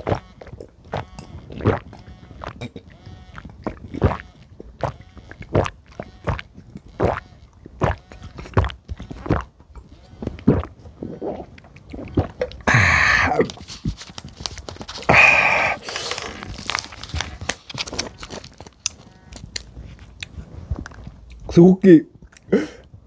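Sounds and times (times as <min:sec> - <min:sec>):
man gulping a drink: 0:00.0 - 0:09.6, 0:10.2 - 0:23.0
breathy wordless cries: 0:12.6 - 0:13.5, 0:15.1 - 0:16.3.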